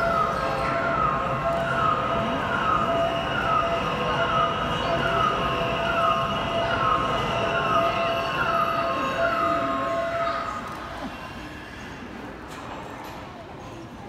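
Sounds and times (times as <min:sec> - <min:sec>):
crane warning alarm falling tone: 0:00.0 - 0:10.5
steady hum: 0:00.0 - 0:10.6.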